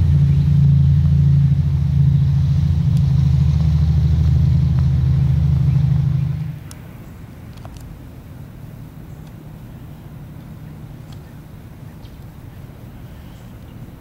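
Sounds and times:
engine droning: 0:00.0 - 0:14.0.

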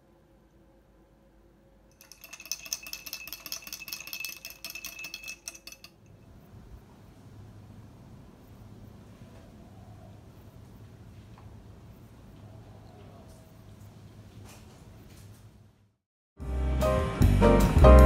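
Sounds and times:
spoon clinking in a glass: 0:02.0 - 0:06.2.

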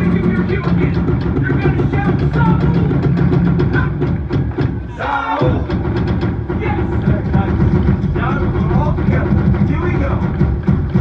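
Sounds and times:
large drums beating: 0:00.0 - 0:11.0.

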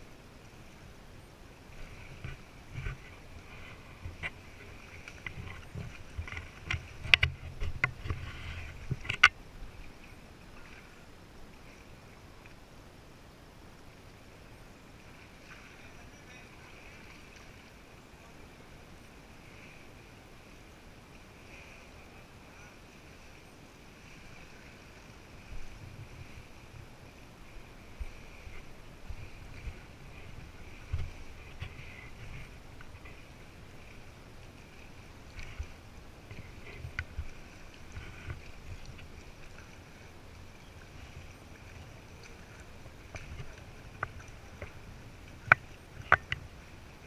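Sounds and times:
kayak knocks and handling: 0:02.1 - 0:09.4, 0:28.0 - 0:33.3, 0:41.0 - 0:46.7.

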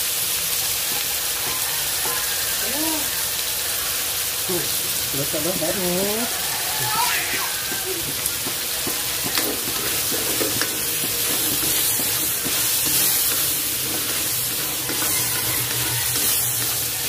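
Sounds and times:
shrimp sizzling in a frying pan: 0:00.0 - 0:17.0
utensil scraping a pan: 0:08.4 - 0:17.0.

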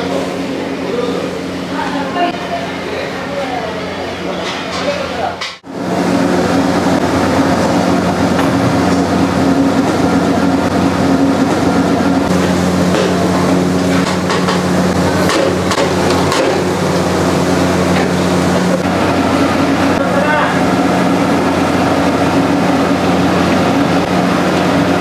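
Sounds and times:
low machine hum with rushing: 0:00.0 - 0:25.0.

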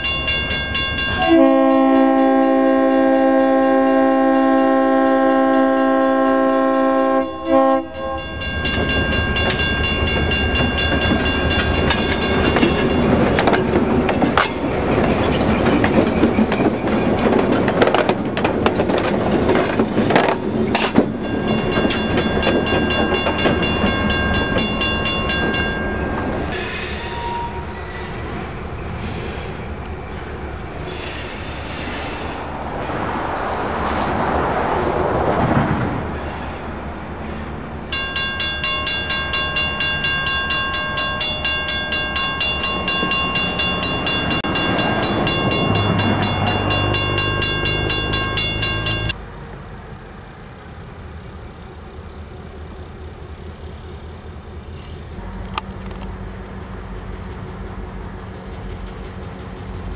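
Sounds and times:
locomotive bell ringing: 0:00.0 - 0:18.1, 0:18.7 - 0:27.9, 0:37.8 - 0:49.2
diesel locomotive engine: 0:00.0 - 0:59.9
train wheels on track: 0:00.0 - 0:59.9.

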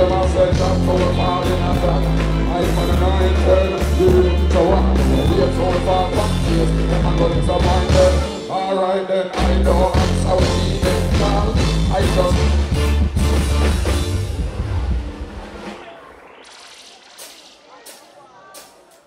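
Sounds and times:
person singing: 0:00.0 - 0:12.6
live band music: 0:00.0 - 0:19.0.

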